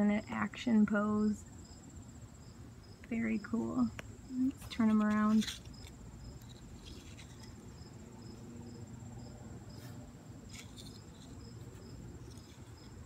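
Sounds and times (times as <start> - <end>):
insect chirps: 0.0 - 13.0
insects trilling: 0.0 - 13.0.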